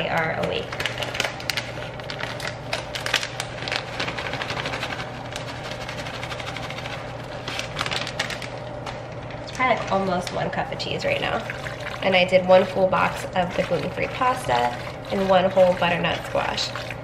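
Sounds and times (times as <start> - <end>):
plastic bag crinkling: 0.0 - 10.3.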